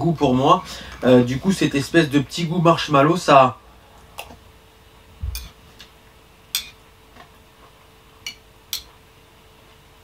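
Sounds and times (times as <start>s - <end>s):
spoon clinking on ceramic bowl: 6.6s - 6.8s, 8.3s - 8.9s.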